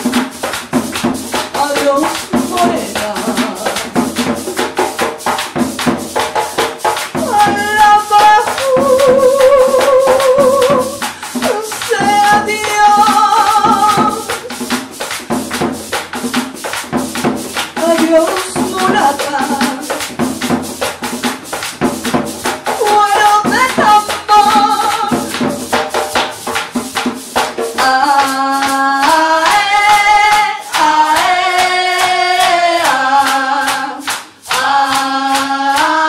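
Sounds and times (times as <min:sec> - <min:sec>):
hand clapping: 0:00.0 - 0:36.0
hand drum: 0:00.0 - 0:36.0
rattling percussion: 0:00.0 - 0:36.0
woman singing with other voices: 0:00.9 - 0:05.1, 0:06.4 - 0:14.8, 0:17.6 - 0:20.8, 0:22.6 - 0:25.8, 0:27.6 - 0:36.0.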